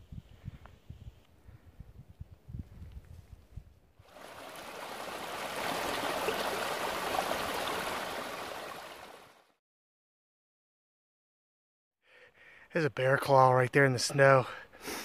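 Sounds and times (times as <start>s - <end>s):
stream splashing over stones: 4.1s - 9.4s.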